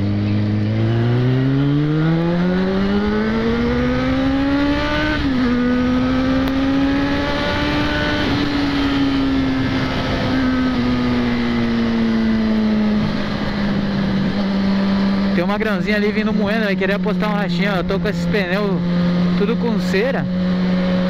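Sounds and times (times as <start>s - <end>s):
motorcycle engine accelerating: 0.0s - 21.0s
wind rush: 2.8s - 16.8s.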